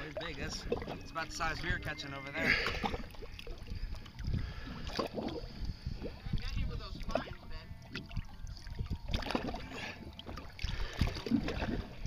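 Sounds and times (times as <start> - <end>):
water slapping against boat hull: 2.6 - 12.0.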